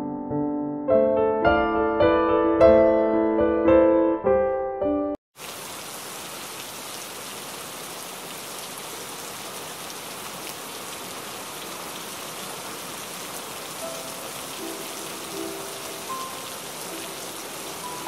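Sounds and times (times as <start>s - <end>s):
steady rain falling: 5.4s - 18.0s.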